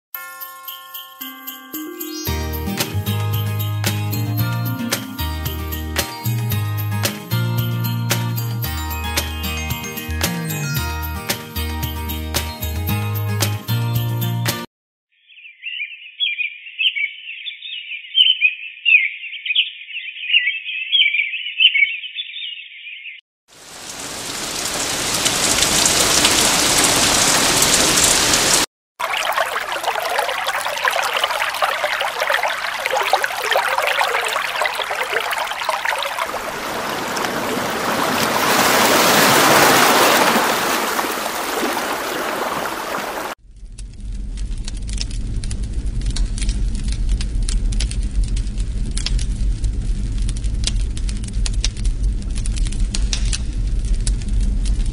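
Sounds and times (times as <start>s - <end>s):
brook running water: 23.6s - 43.4s
campfire crackling: 23.6s - 54.9s.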